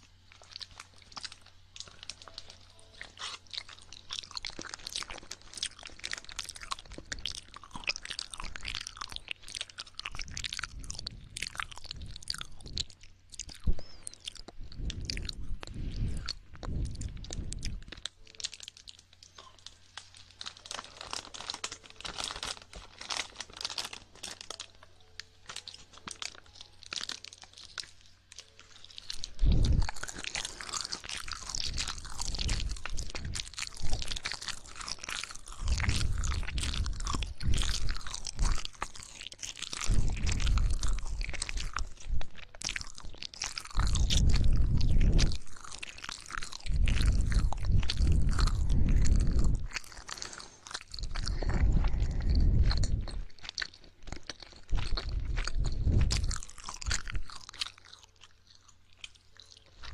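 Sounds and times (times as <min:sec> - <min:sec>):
wet mouth clicks and smacks: 0:39.8 - 0:57.8.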